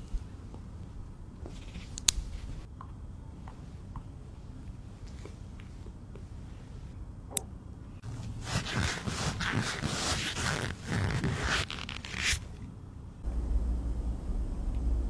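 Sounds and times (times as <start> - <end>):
low steady rumble: 0.0 - 15.0
cotton swab scraping in ear: 8.1 - 12.6.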